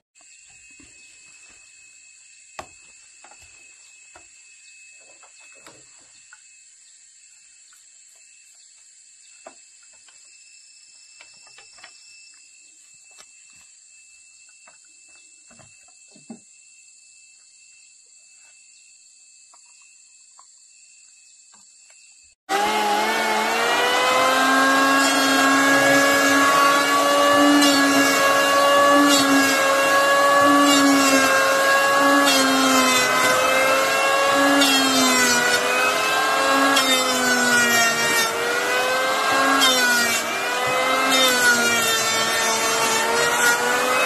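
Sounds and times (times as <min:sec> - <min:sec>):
high-pitched insect chorus: 0:00.2 - 0:22.3.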